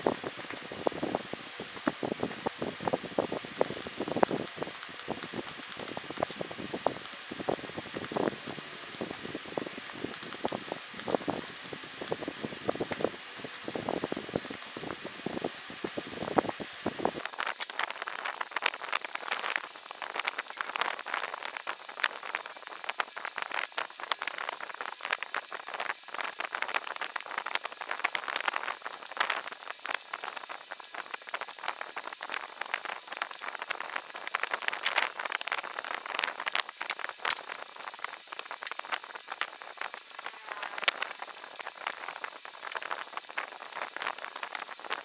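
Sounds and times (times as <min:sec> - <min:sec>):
sharp clicks: 0:34.7 - 0:35.3.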